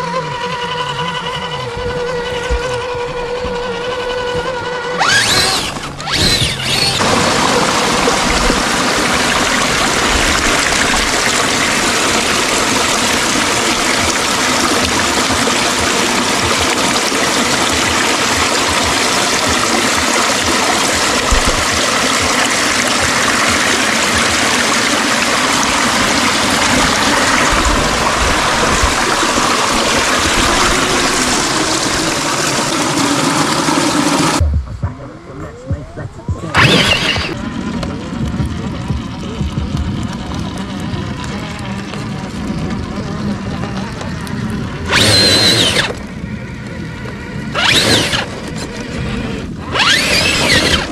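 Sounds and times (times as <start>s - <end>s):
creek water splashing over rocks: 0.5s - 34.4s, 36.5s - 50.9s.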